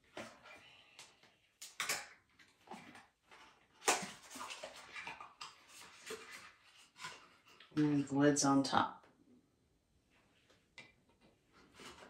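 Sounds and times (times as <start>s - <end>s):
cardboard packaging rustling: 2.4s - 7.7s.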